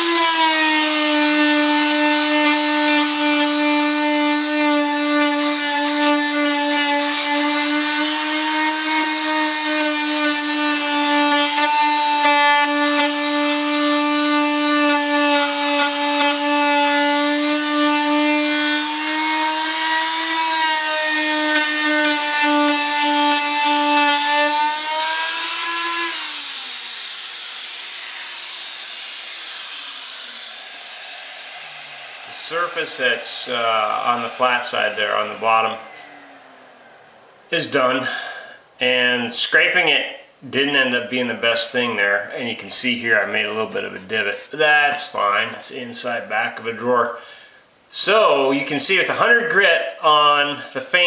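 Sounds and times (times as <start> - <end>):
tool winding down: 0.0 - 37.2
oscillating tool sanding hum: 0.0 - 37.5
steady hiss: 26.4 - 39.5.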